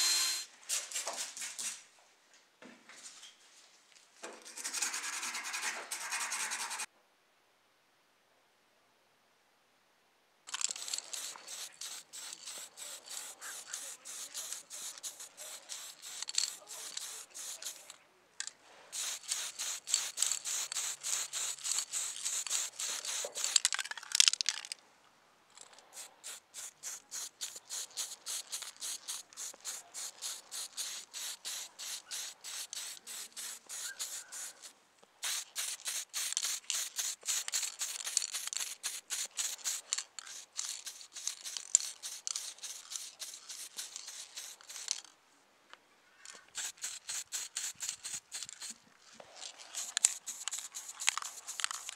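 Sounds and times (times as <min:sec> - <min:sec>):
spray paint can hissing bursts: 0:00.0 - 0:01.7, 0:04.4 - 0:06.9, 0:10.5 - 0:18.0, 0:18.9 - 0:24.4, 0:26.0 - 0:45.1, 0:46.3 - 0:48.8, 0:49.4 - 0:51.9.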